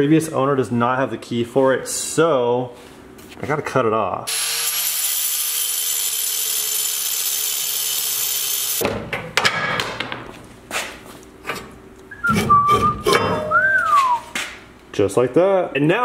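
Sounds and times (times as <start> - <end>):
angle grinder cutting steel: 4.3 - 8.8.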